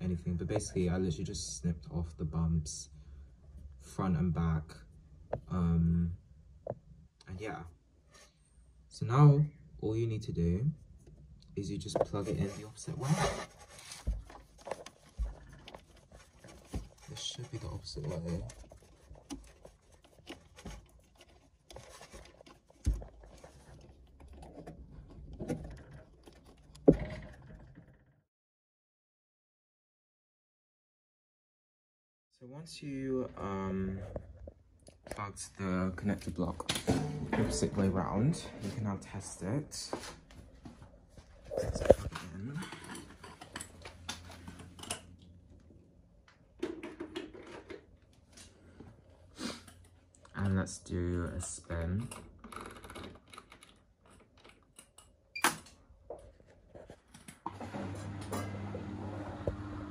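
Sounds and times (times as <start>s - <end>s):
small clicks and rustles: 13.6s - 28.0s, 52.0s - 57.5s.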